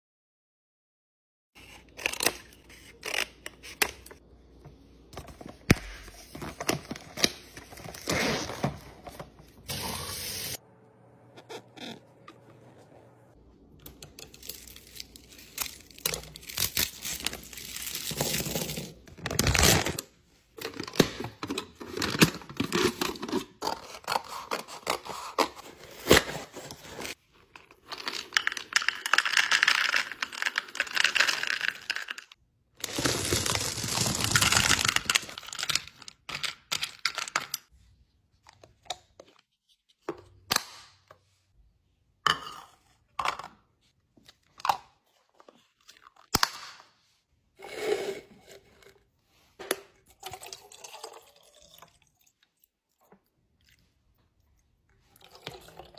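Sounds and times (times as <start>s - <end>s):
plastic packaging crinkling and tearing: 14.3s - 20.0s, 32.8s - 36.2s
peanuts pouring into plastic container: 32.8s - 35.6s.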